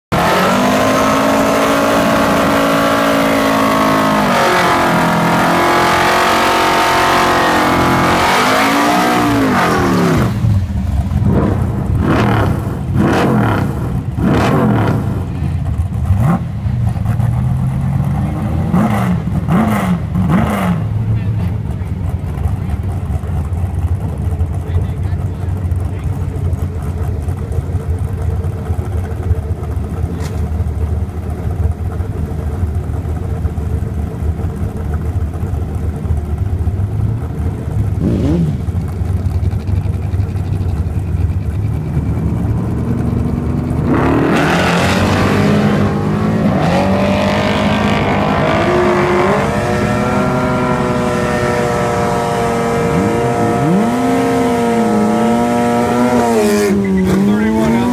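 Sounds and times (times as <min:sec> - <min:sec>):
engine revving: 0:00.1 - 0:21.9, 0:37.9 - 0:57.9
drag cars launching at full throttle: 0:00.1 - 0:27.4, 0:37.8 - 0:57.9
drag car engines idling: 0:09.3 - 0:44.3.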